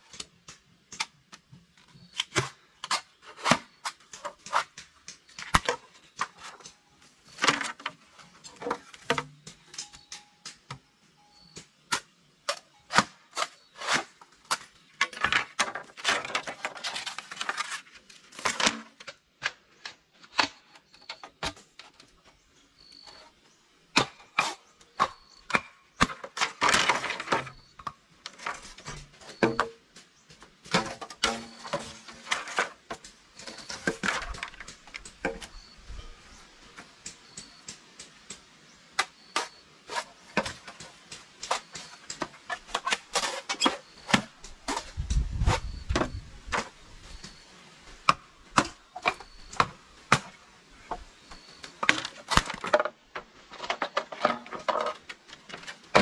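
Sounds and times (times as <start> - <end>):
scraping and rustling: 13.0 - 19.2, 28.3 - 36.9, 39.3 - 48.0.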